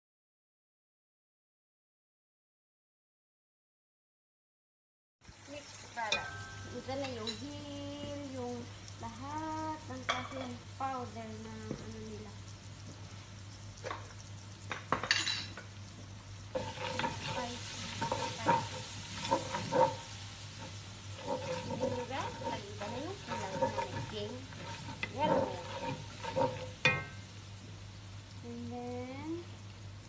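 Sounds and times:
food frying in oil: 5.2 - 30.0
wooden spatula scraping pan: 16.5 - 27.2.

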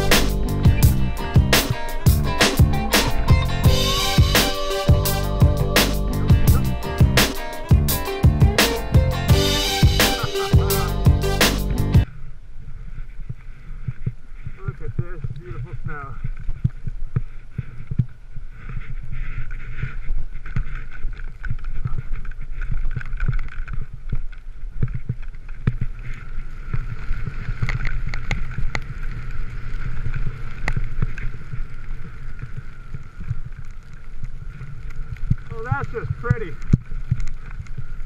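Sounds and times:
skis sliding through snow: 16.8 - 24.0, 24.8 - 38.0.

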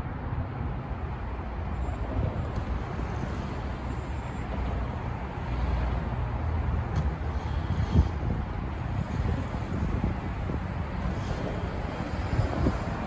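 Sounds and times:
street traffic: 0.0 - 13.0
skate wheels rolling on pavement: 0.8 - 13.0
wind on microphone: 2.0 - 13.0.

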